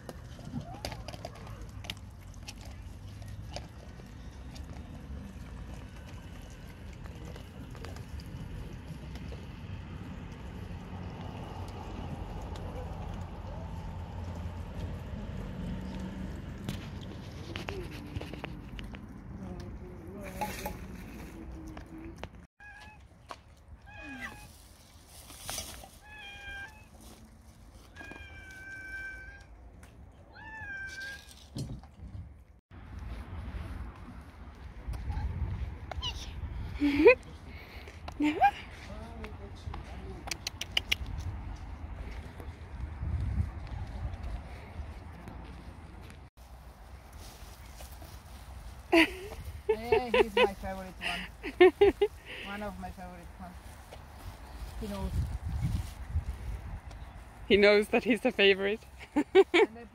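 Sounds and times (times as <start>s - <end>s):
low outdoor rumble: 0.0s - 22.5s
cats meowing: 26.0s - 26.9s, 27.9s - 29.5s, 30.3s - 31.4s.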